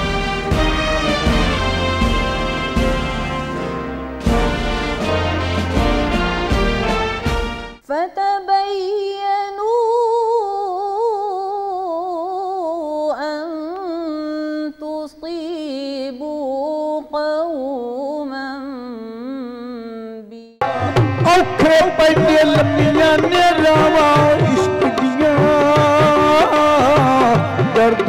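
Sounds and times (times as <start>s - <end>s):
band music: 0.0s - 7.8s, 20.6s - 28.0s.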